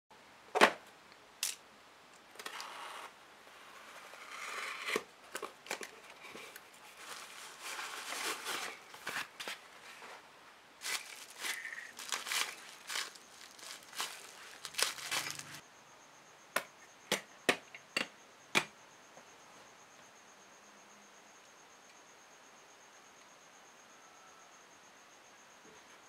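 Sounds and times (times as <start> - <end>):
cardboard flaps scraping and rustling: 4.9 - 10.2, 10.8 - 15.6
foam wrap crinkling: 5.7 - 10.1, 10.8 - 15.6.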